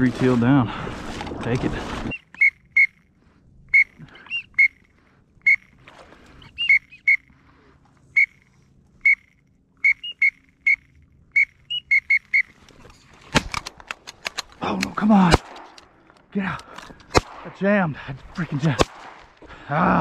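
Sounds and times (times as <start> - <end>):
duck whistle peeps: 2.1 - 3.1, 3.7 - 4.8, 5.4 - 5.8, 6.4 - 7.3, 8.1 - 12.6.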